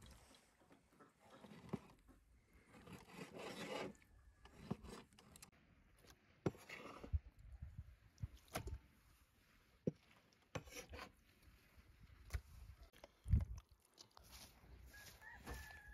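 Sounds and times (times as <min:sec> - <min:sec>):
rasping scrape: 0:01.2 - 0:02.0, 0:02.6 - 0:05.5, 0:06.4 - 0:07.2, 0:10.5 - 0:11.2.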